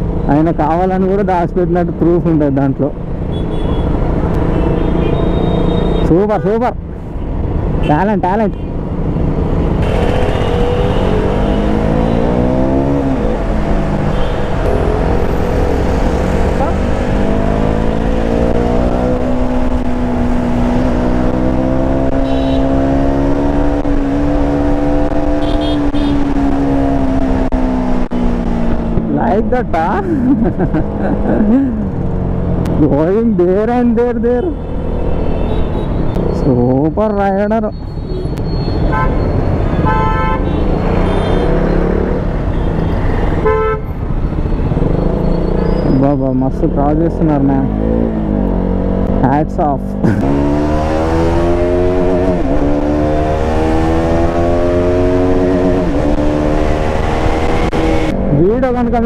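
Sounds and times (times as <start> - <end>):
city traffic: 0.0 - 59.0
wind and road noise: 0.0 - 59.0
vehicle horns honking: 3.3 - 6.2, 9.8 - 12.5, 14.1 - 15.4, 22.1 - 22.8, 25.4 - 26.3, 35.2 - 36.2, 37.9 - 41.8, 42.5 - 46.0
motorcycle engine revving up: 9.8 - 29.9, 40.6 - 42.4, 44.3 - 59.0.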